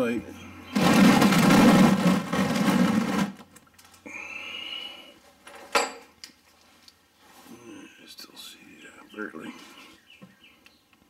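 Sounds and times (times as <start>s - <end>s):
loud scraping rustle: 0.7s - 3.5s.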